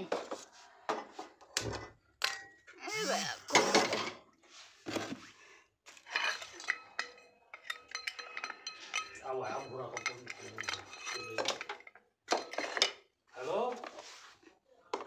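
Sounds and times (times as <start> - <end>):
metal pot and utensils clinking: 1.8 - 2.7, 5.9 - 13.1
person talking: 2.8 - 3.6.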